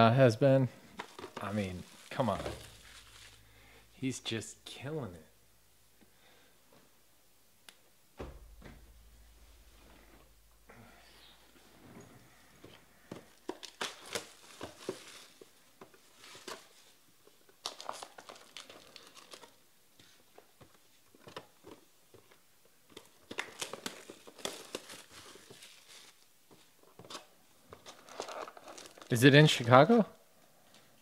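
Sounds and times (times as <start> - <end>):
plastic wrapping crinkling: 0.9 - 3.8, 13.0 - 19.6, 21.1 - 30.0.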